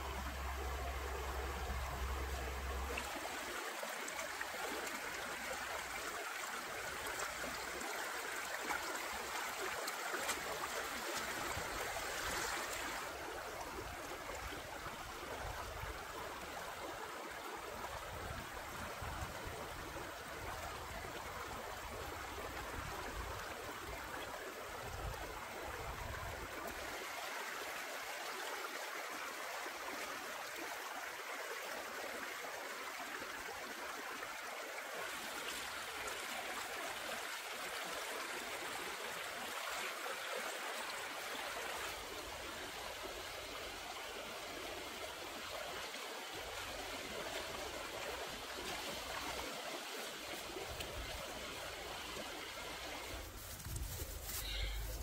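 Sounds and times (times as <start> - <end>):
stream rushing over rocks: 0.0 - 55.0.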